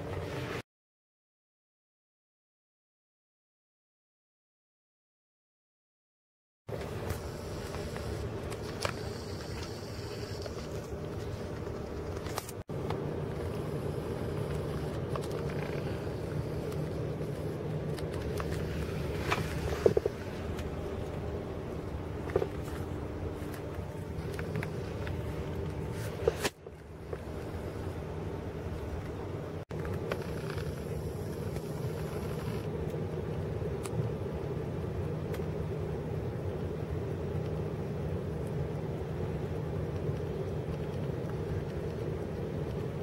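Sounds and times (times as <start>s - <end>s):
car engine and road noise: 6.7s - 32.8s.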